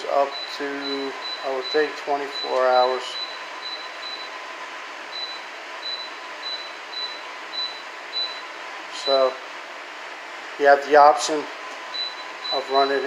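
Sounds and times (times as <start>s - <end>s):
air conditioner fan hiss: 0.0s - 13.0s
faint high beeps: 0.2s - 4.3s, 12.0s - 13.0s.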